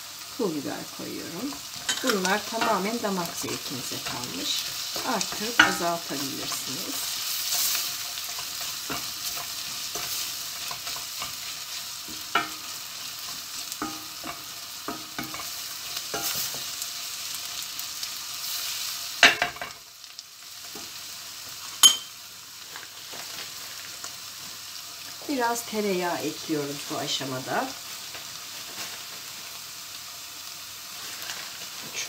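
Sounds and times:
vegetables sizzling in oil: 0.0 - 32.0
spoon knocking on pan: 5.0 - 5.9, 12.1 - 12.7, 13.8 - 15.5, 21.8 - 22.2.

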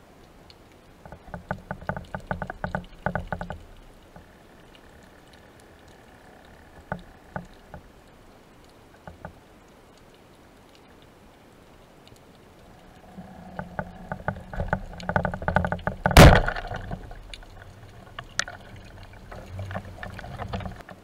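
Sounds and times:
faint steady hiss: 0.0 - 21.0
underwater clicks and knocks: 1.0 - 7.9, 8.6 - 9.4, 12.0 - 21.0.

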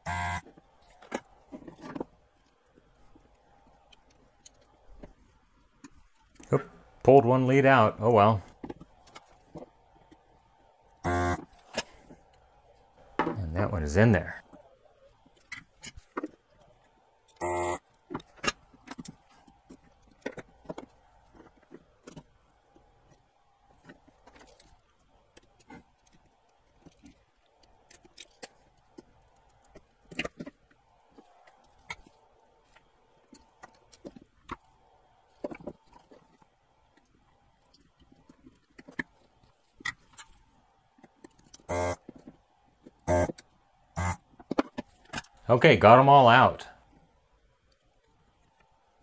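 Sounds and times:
faint steady hum: 0.0 - 49.0
short buzz: 41.7 - 42.0, 43.1 - 43.3, 44.0 - 44.2.

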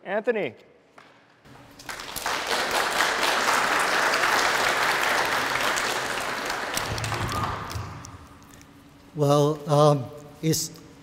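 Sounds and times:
audience applauding: 1.8 - 8.2.

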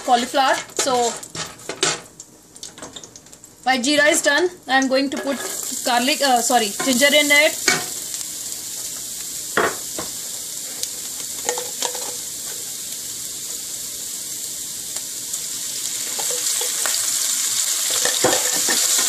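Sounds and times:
wooden spatula scraping pan: 0.0 - 2.0, 5.1 - 5.7
spices sizzling in hot oil: 0.0 - 19.0.

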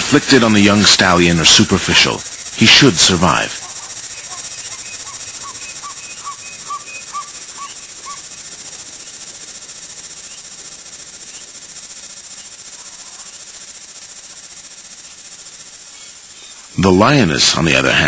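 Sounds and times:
high-pitched insect chorus: 0.0 - 18.0
bird calling short notes: 3.6 - 8.2.

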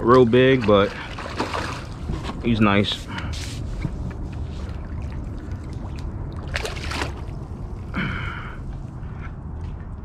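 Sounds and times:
water sloshing and splashing: 0.0 - 10.0
low rumble: 3.1 - 10.0.

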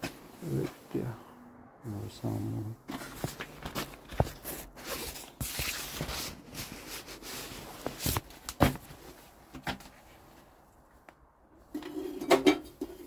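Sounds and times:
handling rustling: 2.9 - 11.1.

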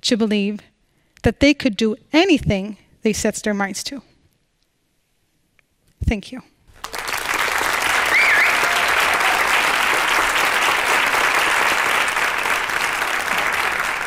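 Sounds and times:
audience applauding: 6.8 - 14.0
high-pitched call from crowd: 8.0 - 9.6.

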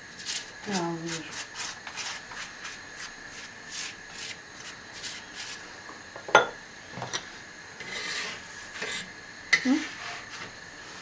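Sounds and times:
pastry brush swishing on flatbread: 0.2 - 5.6.

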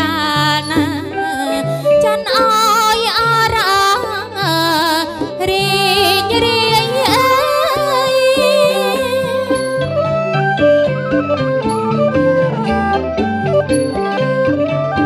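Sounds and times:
woman singing with vibrato: 0.0 - 10.0
traditional ensemble playing: 0.0 - 15.0.

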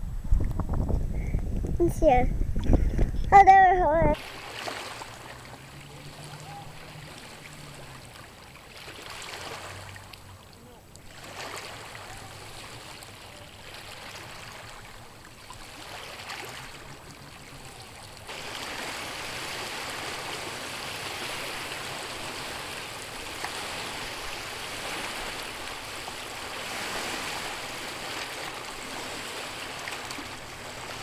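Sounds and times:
lake waves lapping over stones: 4.2 - 31.0.

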